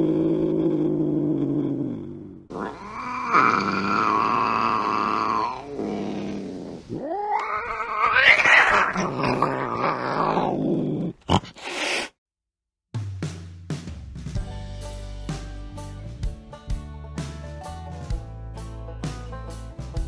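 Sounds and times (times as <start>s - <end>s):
cat yowling: 2.5s - 5.7s, 6.9s - 10.6s.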